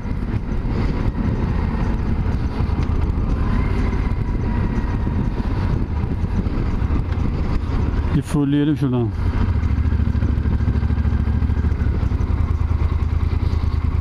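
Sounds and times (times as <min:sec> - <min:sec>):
motorcycle engine running: 0:00.0 - 0:14.0
wind rumble on microphone: 0:00.0 - 0:14.0.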